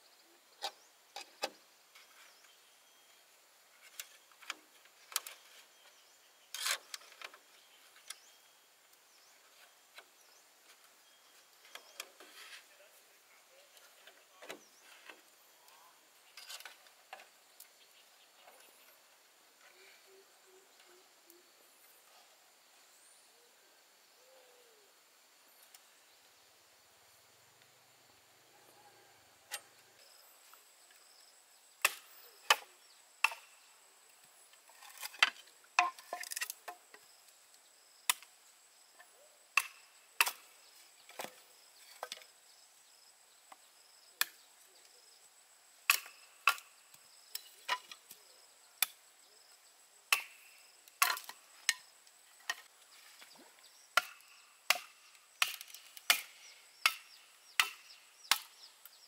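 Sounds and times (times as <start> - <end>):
blade chopping bamboo: 31.8 - 33.5, 45.9 - 46.6, 50.1 - 50.4, 54.0 - 58.5.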